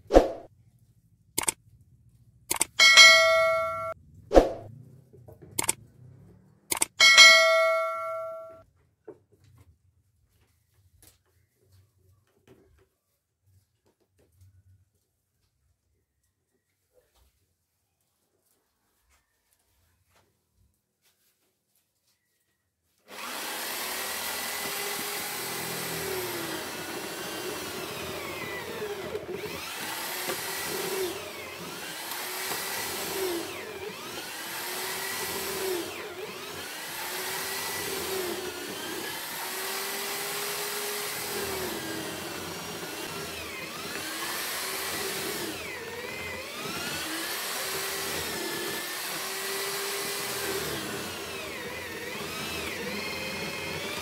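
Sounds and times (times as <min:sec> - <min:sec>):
electric drill boring into wood: 0:23.1 - 0:54.0.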